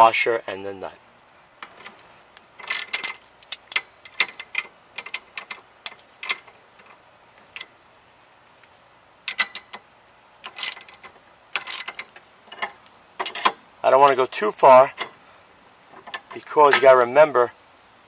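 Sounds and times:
socket ratchet clicking: 0:02.6 - 0:06.6, 0:09.3 - 0:09.8, 0:10.4 - 0:13.6.

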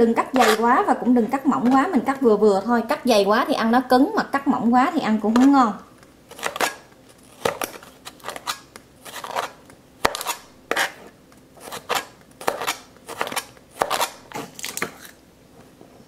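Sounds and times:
blade crunching through carrot: 0:06.3 - 0:15.2.

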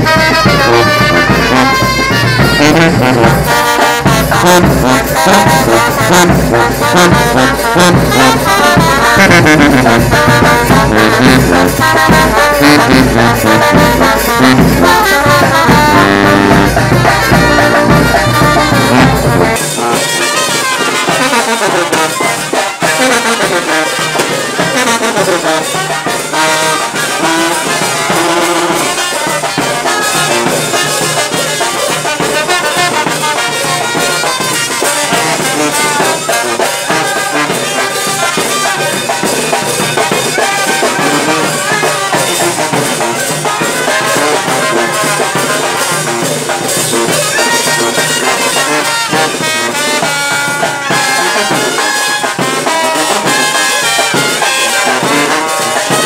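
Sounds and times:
bass drum: 0:00.0 - 0:22.5
snare drum: 0:00.0 - 0:56.0
trombones: 0:00.0 - 0:56.0
trumpets: 0:00.0 - 0:56.0.

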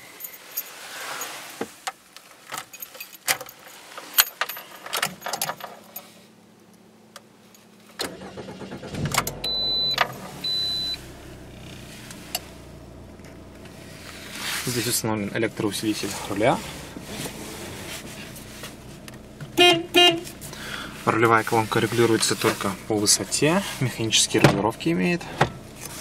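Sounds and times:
keys jangling in ignition: 0:02.6 - 0:06.2
car engine starting and idling: 0:05.6 - 0:26.0.

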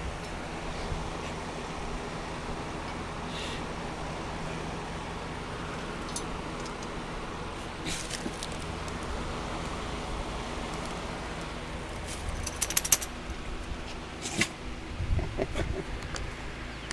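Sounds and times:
low background noise: 0:00.0 - 0:16.9
small metal pieces jingling: 0:12.1 - 0:13.1
sharp ringing clinks: 0:12.4 - 0:13.2.

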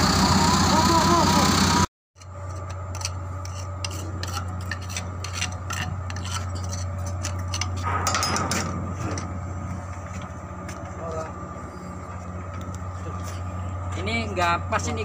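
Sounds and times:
steady engine hum: 0:00.0 - 0:15.0
metal clinking and scraping: 0:02.2 - 0:09.4.

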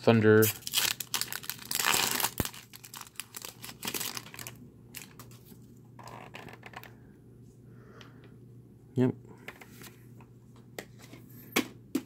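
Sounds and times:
foil wrapper crinkling: 0:00.4 - 0:05.4.

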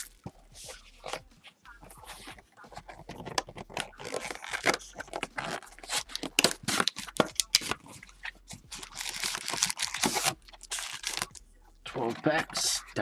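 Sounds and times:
card packs crinkling: 0:02.2 - 0:11.4
cardboard box tearing: 0:03.6 - 0:07.8, 0:08.8 - 0:11.4.

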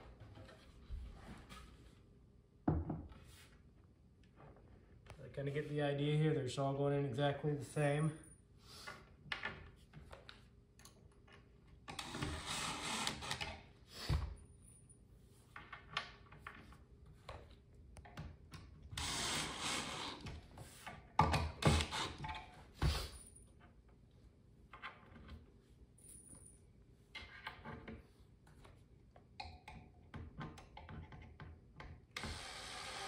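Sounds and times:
cordless drill driving screws: 0:11.9 - 0:13.6, 0:18.9 - 0:20.4, 0:21.6 - 0:22.4, 0:32.2 - 0:33.0.

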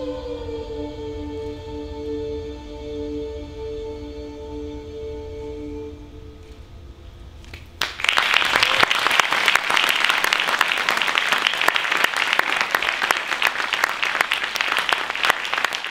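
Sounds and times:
audience applauding: 0:07.5 - 0:15.9.

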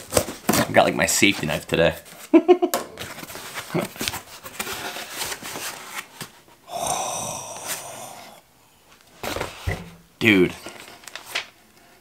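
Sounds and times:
breathy gasp of amazement: 0:06.7 - 0:08.4.

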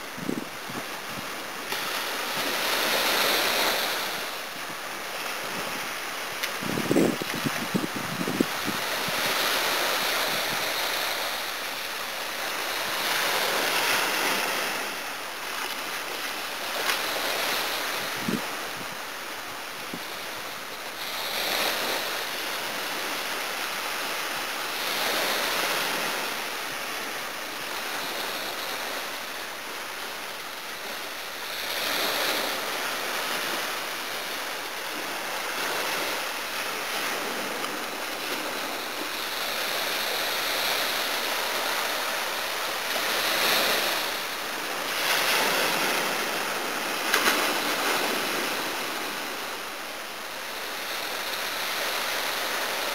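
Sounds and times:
sea waves breaking on beach: 0:00.0 - 0:52.9.

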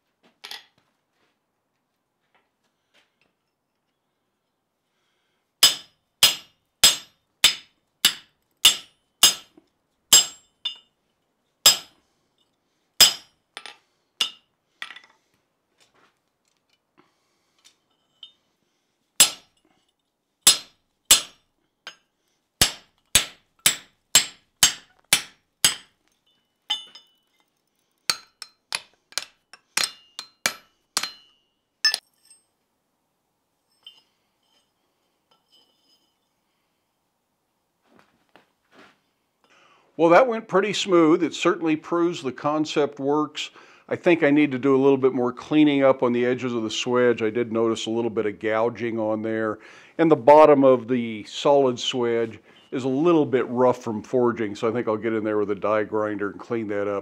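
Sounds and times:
hammer ringing on metal: 0:29.8 - 0:32.0.

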